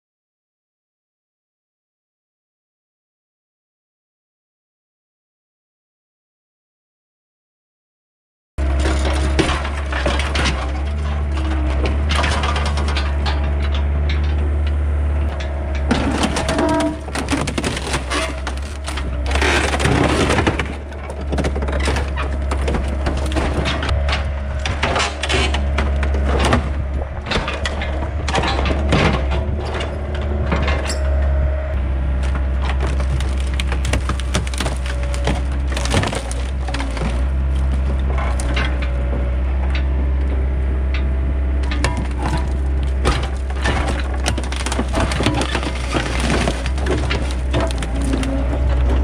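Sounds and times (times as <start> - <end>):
sheet metal crunching: 8.6 - 31.1, 32.2 - 38.8, 41.7 - 49.0
excavator engine droning: 8.6 - 49.0.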